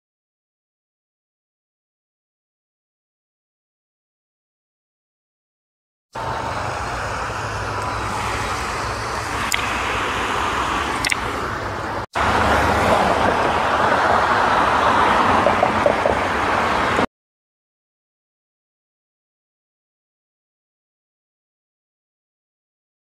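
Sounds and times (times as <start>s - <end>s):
road traffic noise: 6.2s - 17.1s.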